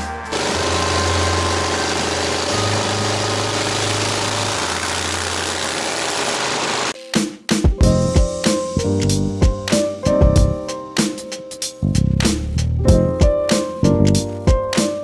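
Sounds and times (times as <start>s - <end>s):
motorcycle engine running: 0.4s - 6.9s.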